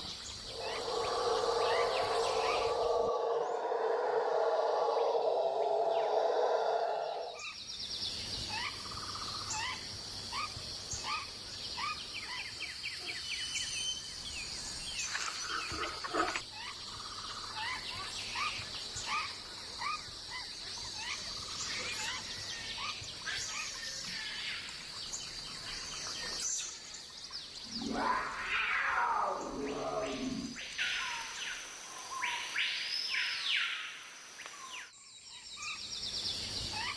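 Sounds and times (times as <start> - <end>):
high-pitched insect drone: 0.4 - 7.4.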